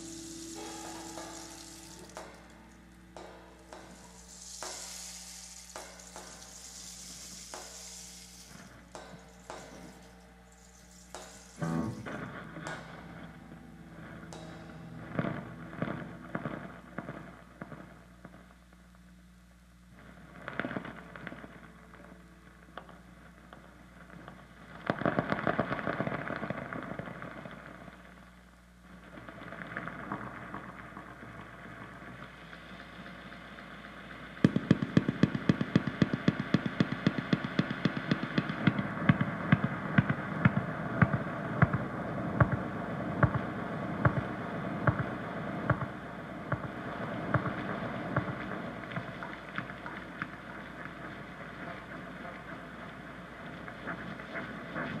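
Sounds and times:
improvised guitar: 0.0s - 18.5s
drums: 0.0s - 26.7s, 27.6s - 55.0s.

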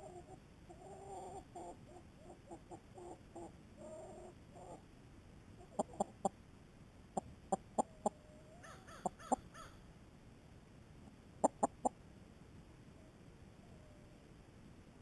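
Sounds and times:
drawn-out wavering hen call: 0.0s - 4.8s, 7.2s - 9.8s
hens clucking: 0.0s - 4.8s, 5.6s - 6.4s, 7.2s - 9.7s, 11.4s - 12.0s.

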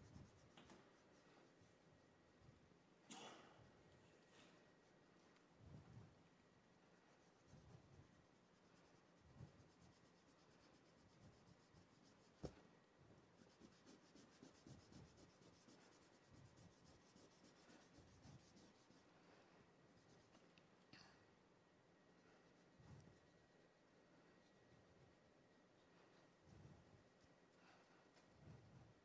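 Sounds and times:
charcoal scratching on paper: 7.1s - 12.6s, 13.4s - 19.1s.

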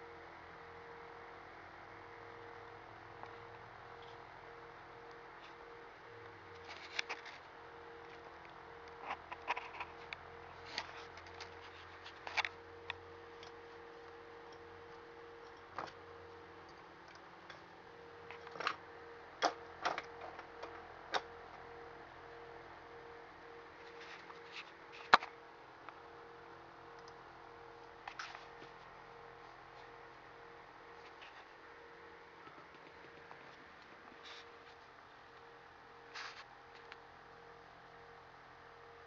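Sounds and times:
faint steady hum: 0.0s - 39.0s.

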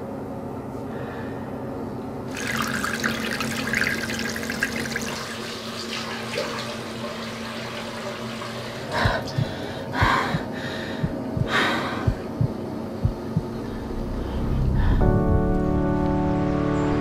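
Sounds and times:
water running into washbasin: 2.3s - 9.6s
low hum: 8.8s - 17.0s.

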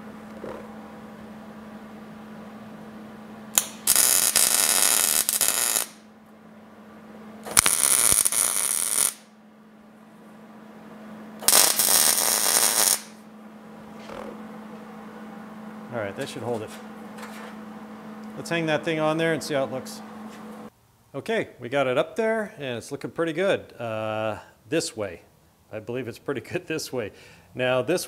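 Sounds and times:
welding arc bursts: 3.5s - 6.0s, 7.4s - 9.3s, 11.4s - 13.2s.

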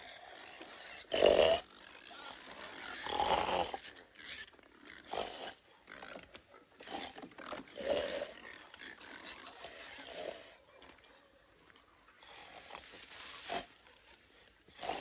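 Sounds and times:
pigs grunting and squealing: 0.0s - 6.2s, 6.8s - 10.9s, 14.7s - 15.0s.

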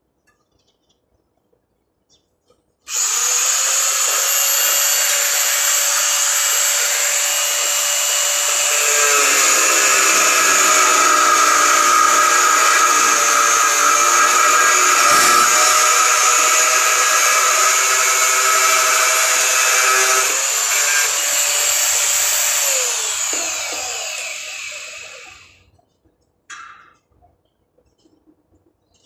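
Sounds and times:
angle grinder running: 2.9s - 25.5s
grinder disc on steel: 2.9s - 25.5s.

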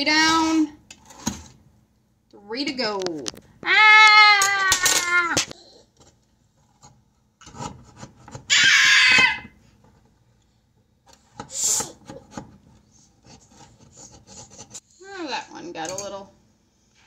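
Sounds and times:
knife scraping metal muffin tin: 13.2s - 14.8s.

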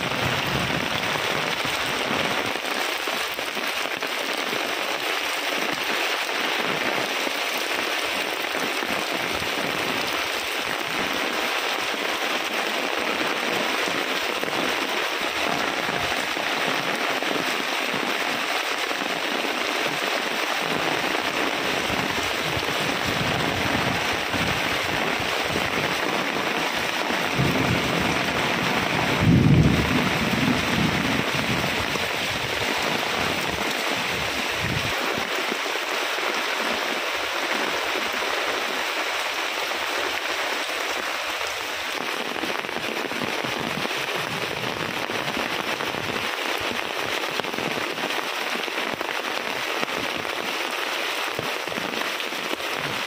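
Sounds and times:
heavy rain: 0.0s - 53.0s
thunder rolling: 27.2s - 35.0s.

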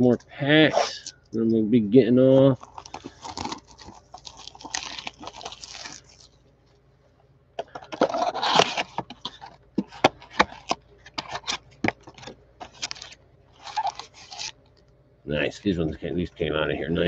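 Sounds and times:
plastic wrap crinkling and tearing: 2.6s - 6.4s, 7.8s - 9.6s, 10.3s - 14.6s.

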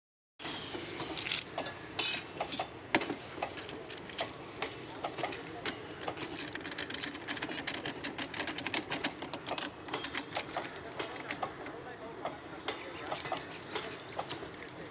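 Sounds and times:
rapid metallic clicking: 3.4s - 11.8s.

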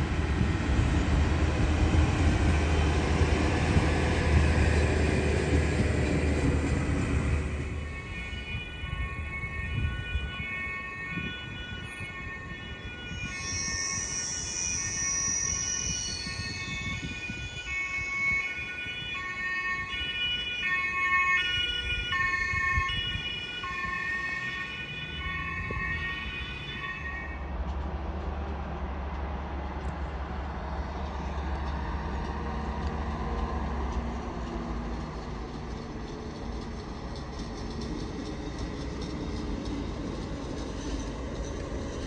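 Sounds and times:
train rumbling: 0.0s - 19.9s, 21.6s - 42.0s
two-tone emergency siren: 3.5s - 27.6s.

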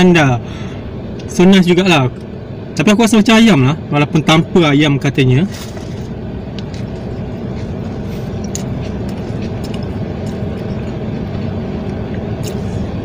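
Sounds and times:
car engine idling: 0.0s - 13.0s
chewing clicks: 8.4s - 12.6s.

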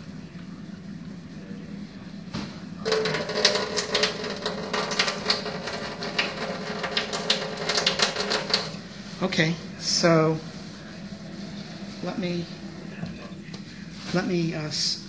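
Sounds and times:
water running into a steel sink: 2.9s - 8.9s.

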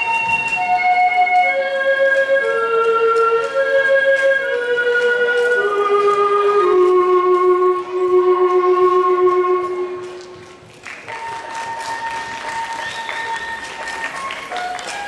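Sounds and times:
electronic tone melody: 0.0s - 10.1s.

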